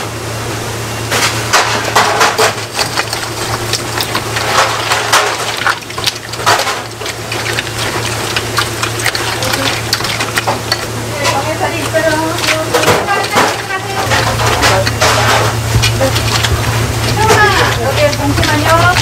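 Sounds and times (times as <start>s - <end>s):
steady low hum: 0.0s - 19.0s
wet squelching and slapping: 2.0s - 19.0s.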